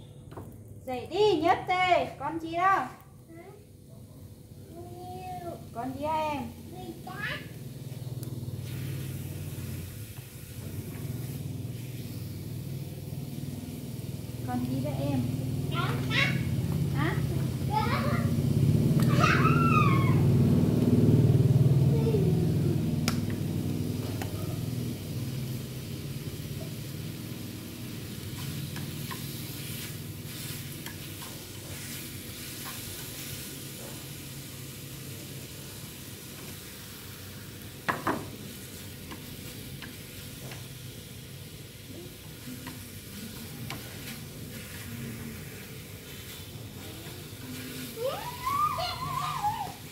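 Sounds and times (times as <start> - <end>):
pork sizzling in a pan: 0.1 - 49.9
chopsticks tapping and scraping pan: 28.3 - 32.0, 43.4 - 44.6.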